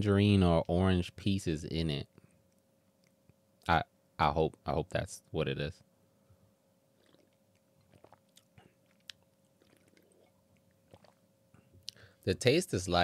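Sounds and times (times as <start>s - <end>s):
sipping and swallowing: 7.0s - 12.0s.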